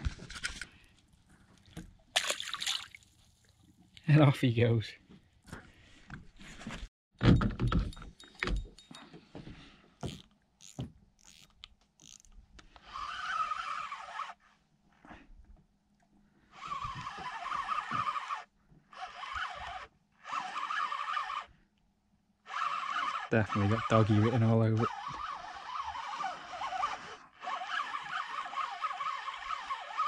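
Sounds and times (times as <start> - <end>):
spinning reel whirring: 12.9 - 14.4, 16.6 - 21.5, 22.5 - 30.0.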